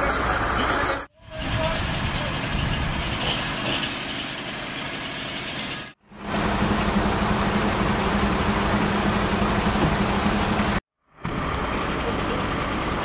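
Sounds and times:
close steady engine hum: 0.0 - 13.0
emergency vehicle engines idling: 0.0 - 13.0.

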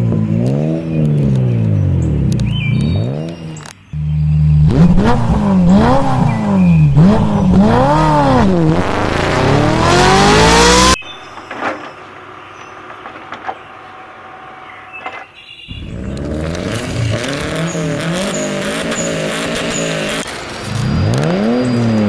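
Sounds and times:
motor revving: 4.0 - 11.0, 15.7 - 22.0.

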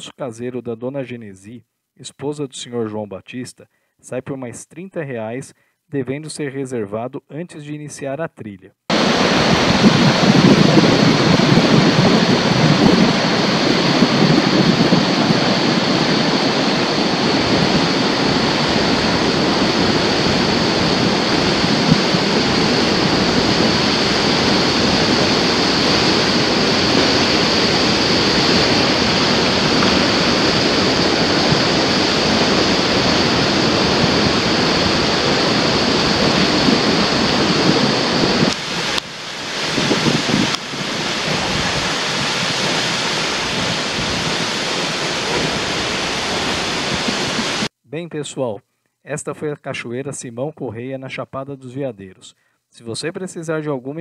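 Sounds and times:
waterfall rushing: 8.9 - 47.7.

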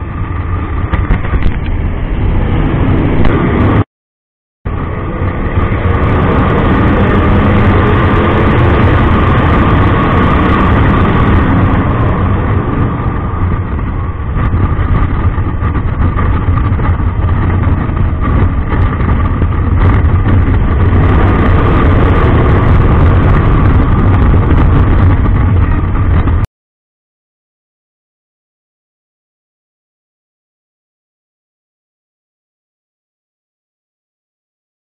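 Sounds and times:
motorcycle engine cruising: 0.0 - 3.8, 4.7 - 26.5
wind and road noise: 0.0 - 3.9, 4.7 - 26.5.

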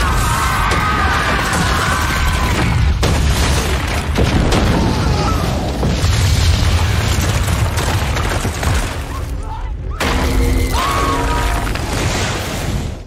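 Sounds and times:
debris crashing: 0.0 - 13.0
deep rumbling explosion: 0.8 - 9.0.

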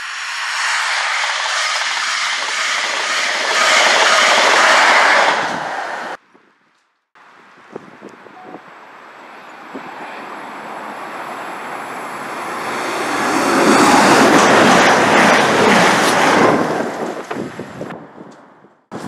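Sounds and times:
high singing rail tones: 0.0 - 6.2
train rushing past: 0.0 - 6.2, 9.2 - 17.8.

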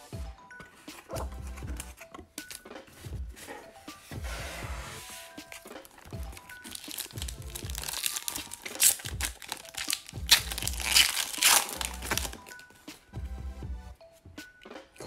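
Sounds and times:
background music with bass line: 0.0 - 15.0
foil wrapper crinkling and tearing: 5.6 - 12.6.

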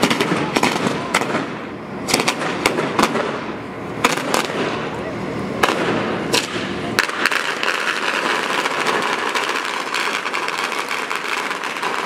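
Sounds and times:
fireworks bangs and cracks: 0.0 - 12.0
fireworks crackling hiss: 0.0 - 12.0.

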